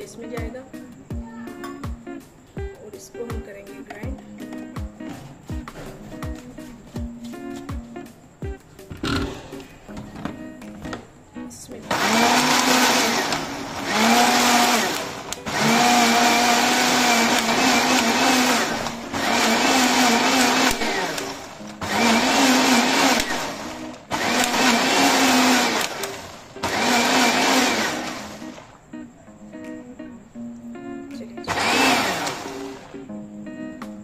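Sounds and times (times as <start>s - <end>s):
electric blender grinding: 9.0s - 9.6s, 11.9s - 28.8s, 31.5s - 32.9s.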